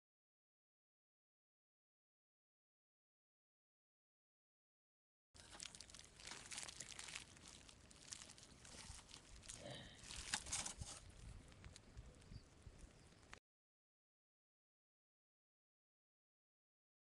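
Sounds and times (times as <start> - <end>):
wood fire crackling: 5.4 - 13.4.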